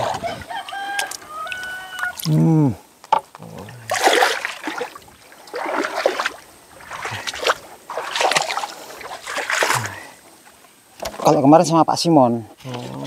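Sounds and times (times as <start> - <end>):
splashing in shallow muddy water: 0.0 - 2.6, 3.4 - 10.2, 12.6 - 13.0.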